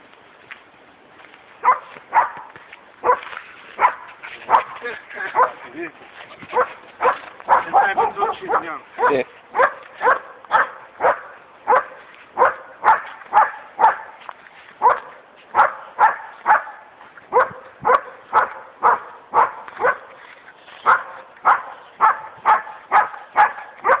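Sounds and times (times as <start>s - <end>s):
puppy barking sharply: 1.6s - 3.2s, 6.5s - 14.1s, 14.8s - 20.1s, 20.9s - 24.0s.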